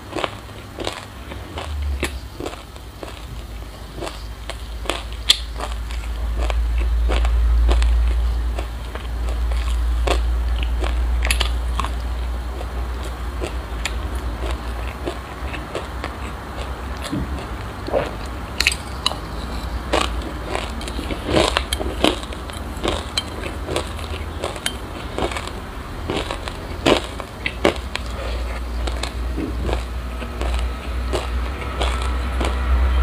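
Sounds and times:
chewing crunchy seeds: 0:00.0 - 0:32.9.

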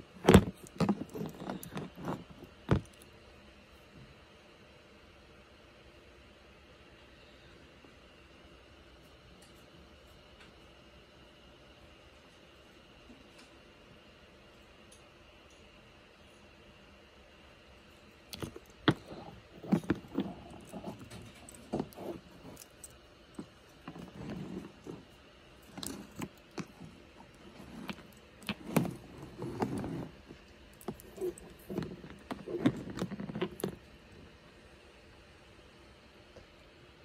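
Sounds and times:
handling rustling: 0:00.0 - 0:03.0, 0:18.3 - 0:34.0
stones clicking and knocking: 0:00.2 - 0:03.0, 0:18.3 - 0:25.1, 0:25.7 - 0:33.9.

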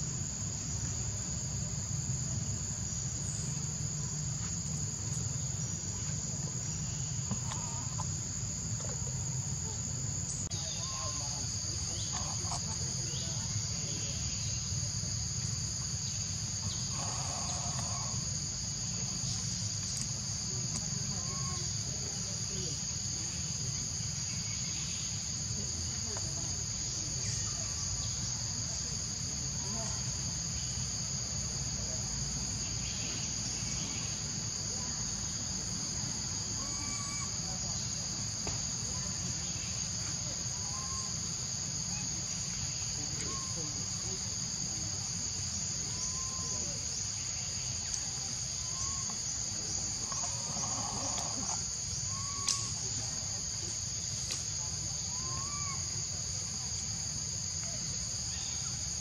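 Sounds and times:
high-pitched insect chorus: 0:00.0 - 0:59.0.

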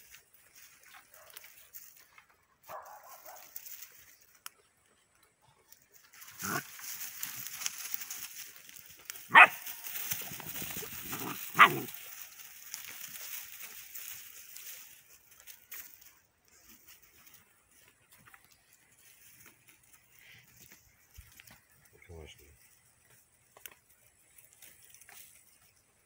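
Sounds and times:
puppies barking: 0:09.3 - 0:10.0, 0:10.7 - 0:12.1.

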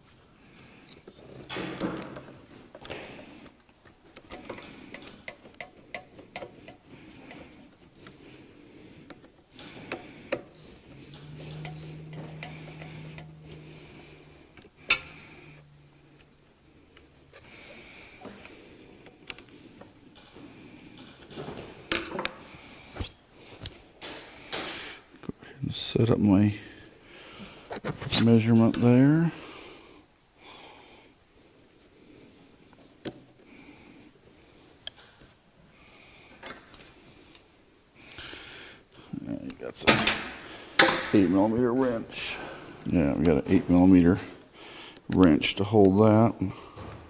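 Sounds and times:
low steady hum: 0:00.0 - 0:23.9.

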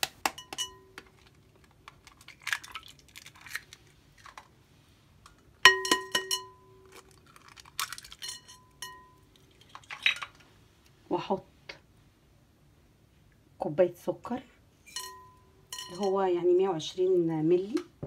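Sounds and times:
eggshell crackling: 0:00.1 - 0:04.6, 0:06.8 - 0:10.4
egg tapping on glass bowl: 0:05.7 - 0:06.5.

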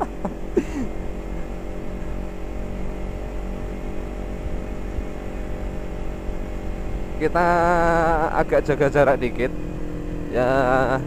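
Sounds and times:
motorcycle engine cruising: 0:00.0 - 0:11.0.

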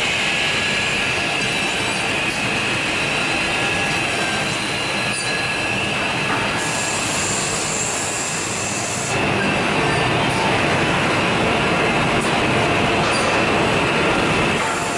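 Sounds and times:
machine high-pitched whine: 0:00.0 - 0:14.9
mechanical hiss: 0:06.5 - 0:09.2.

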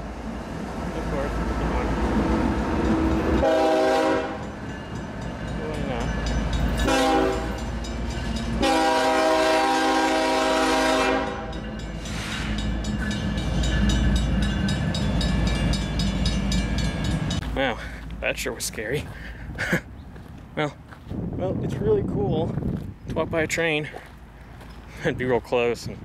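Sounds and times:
locomotive air horn blasts: 0:03.4 - 0:04.5, 0:06.8 - 0:07.6, 0:08.6 - 0:11.6.

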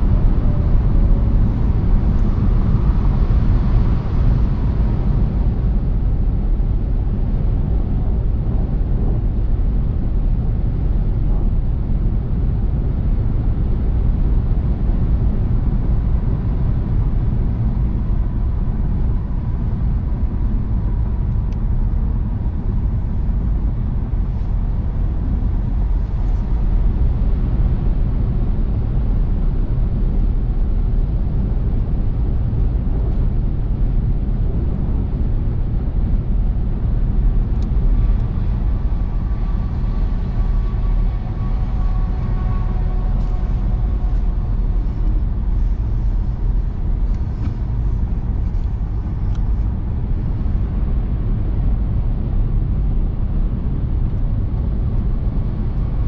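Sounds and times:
road and tyre noise: 0:00.0 - 0:56.0
car engine: 0:35.7 - 0:50.8.

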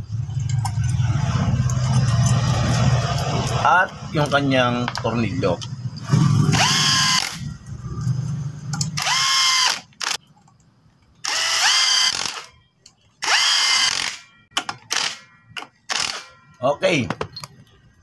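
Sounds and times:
cordless drill whirring: 0:06.5 - 0:07.4, 0:09.0 - 0:10.2, 0:11.2 - 0:12.5, 0:13.2 - 0:14.2.

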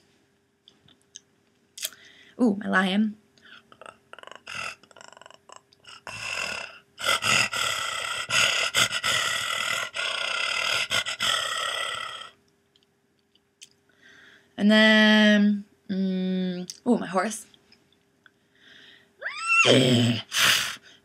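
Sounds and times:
woman imitating lion roar: 0:03.8 - 0:12.4, 0:19.2 - 0:20.3.

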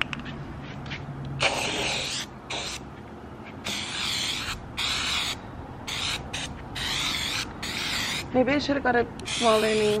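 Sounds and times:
aerosol spray can hissing: 0:01.4 - 0:02.8, 0:03.7 - 0:08.3, 0:09.2 - 0:10.0.

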